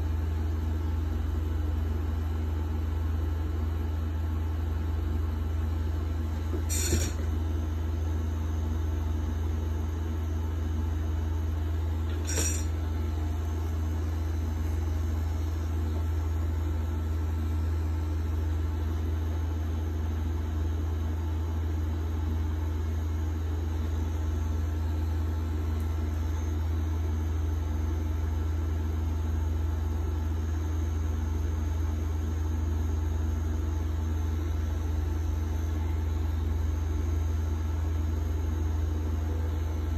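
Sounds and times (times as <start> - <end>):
tattoo machine humming: 6.0 - 10.8, 11.4 - 18.3.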